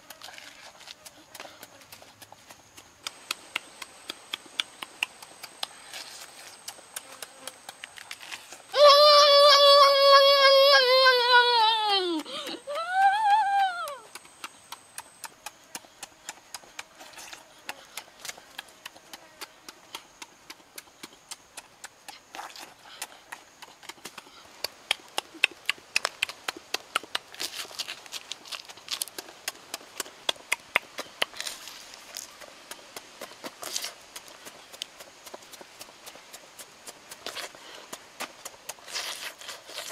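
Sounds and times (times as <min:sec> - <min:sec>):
shrimp shells cracking and crunching: 0:27.2 - 0:29.5.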